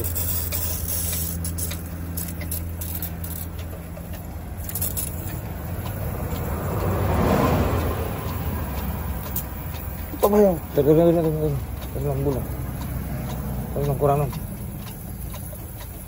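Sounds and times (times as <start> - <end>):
diesel engine running: 0.0 - 16.0.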